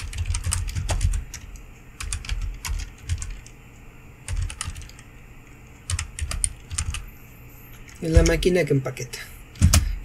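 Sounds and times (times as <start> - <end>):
computer keyboard typing: 0.0 - 3.6, 4.3 - 7.1, 7.8 - 8.5, 9.5 - 9.8.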